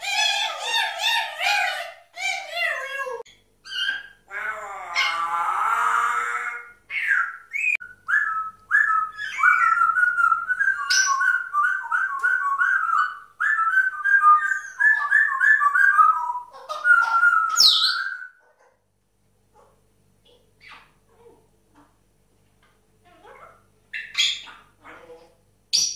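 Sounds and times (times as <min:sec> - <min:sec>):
parrot whistling: 0:06.9 - 0:18.4.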